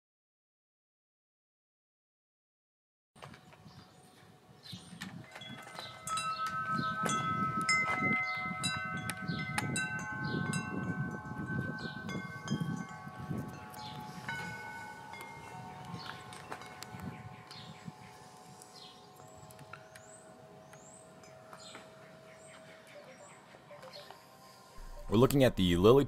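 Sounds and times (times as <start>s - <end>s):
chimes ringing: 5.2s - 25.9s
low rumble: 24.8s - 26.0s.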